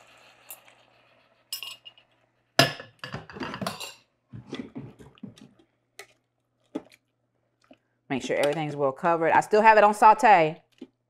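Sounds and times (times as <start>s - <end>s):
beef sizzling: 0.0s - 1.6s.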